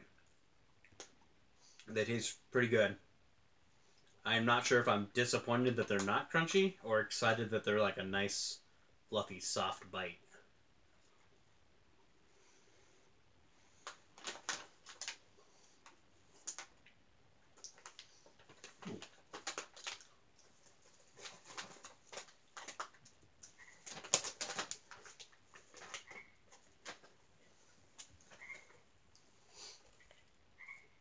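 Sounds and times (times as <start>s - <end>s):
plastic snack packet crackling: 13.8s - 16.9s, 17.5s - 27.2s.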